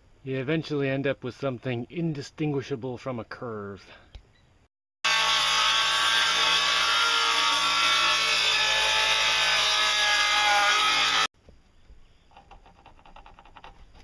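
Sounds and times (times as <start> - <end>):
jigsaw cutting wood: 5.1 - 11.3.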